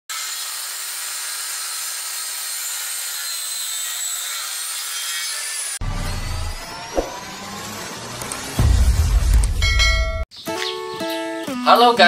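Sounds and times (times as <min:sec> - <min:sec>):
saw blade cutting wood: 0:00.1 - 0:08.6
circular saw whine: 0:05.6 - 0:09.1.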